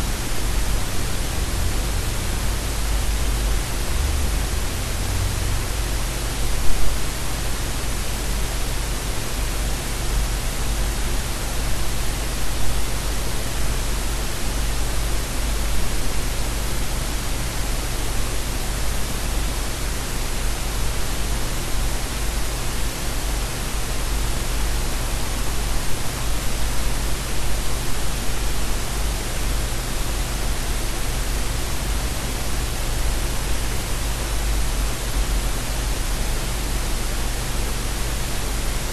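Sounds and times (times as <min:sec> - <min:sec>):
static hiss: 0:00.0 - 0:38.9.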